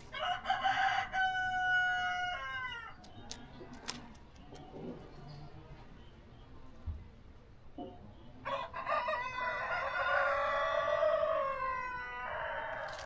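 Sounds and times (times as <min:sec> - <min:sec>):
rooster crowing: 0:00.1 - 0:03.0, 0:08.4 - 0:13.0.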